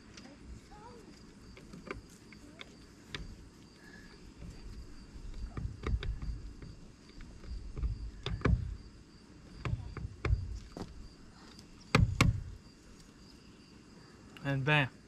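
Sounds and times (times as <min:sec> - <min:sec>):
plastic pipe knocking and thudding: 0:04.4 - 0:06.8, 0:07.4 - 0:08.9, 0:09.5 - 0:11.0, 0:11.9 - 0:12.6.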